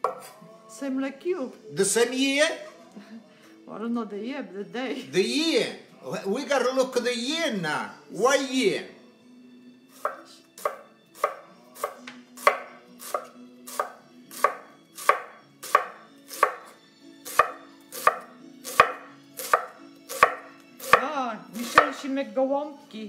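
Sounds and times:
knife slicing cabbage on wooden board: 0:10.0 - 0:21.9.

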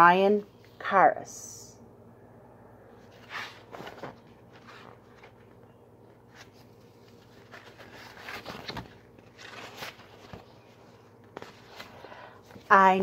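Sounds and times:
faint low hum: 0:00.0 - 0:13.0
book pages rustling: 0:03.1 - 0:13.0.

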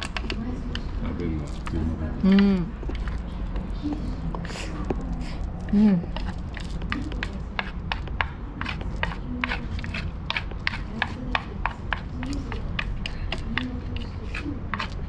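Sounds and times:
chopsticks tapping lunch box: 0:06.2 - 0:15.0.

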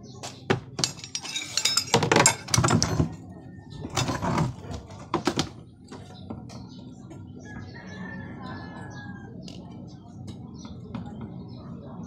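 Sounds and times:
hand tools clinking on metal: 0:00.2 - 0:03.2.

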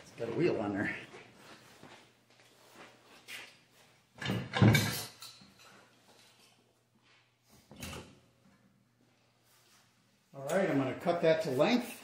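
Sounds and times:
metal parts rattling clunk: 0:04.2 - 0:05.7.

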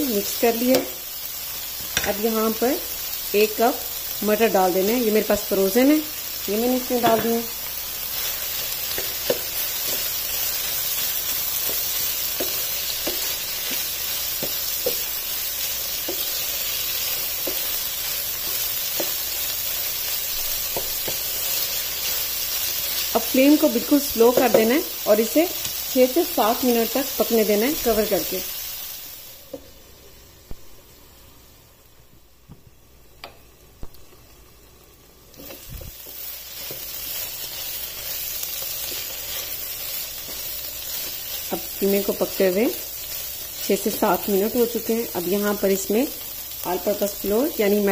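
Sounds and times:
meat sizzling in a frying pan: 0:00.0 - 0:30.4, 0:33.8 - 0:47.9
spatula knocking against pan: 0:07.0 - 0:07.4.

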